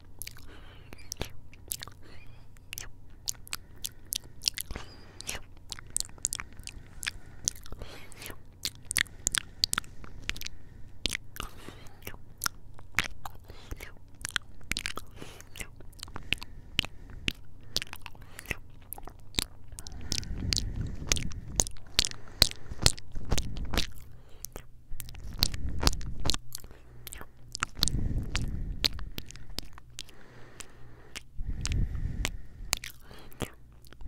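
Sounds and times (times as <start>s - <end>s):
kisses and lip smacks: 0.2s - 6.4s
low rumble of mouth on microphone: 19.0s - 23.9s, 24.9s - 26.4s, 27.6s - 29.7s, 31.3s - 32.9s.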